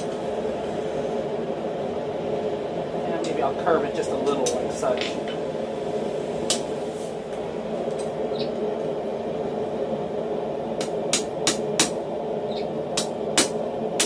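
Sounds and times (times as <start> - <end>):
steady low hum: 0.0 - 14.0
hammer striking hot metal: 10.8 - 12.0, 13.0 - 14.0.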